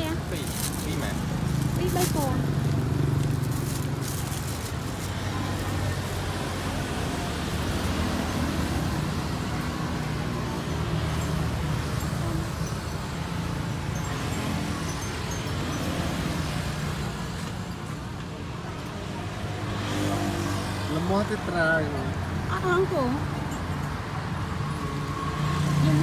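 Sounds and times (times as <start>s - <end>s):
road traffic hum: 0.0s - 26.0s.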